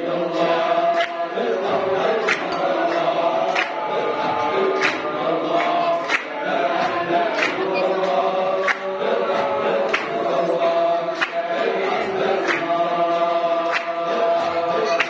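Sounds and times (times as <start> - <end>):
men chanting in unison: 0.0 - 15.0.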